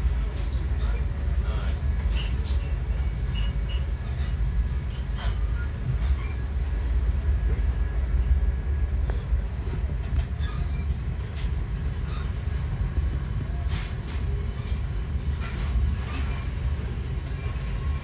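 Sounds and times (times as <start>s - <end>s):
train rumbling: 0.0s - 18.0s
high wheel squeal: 11.8s - 12.6s, 13.6s - 18.0s.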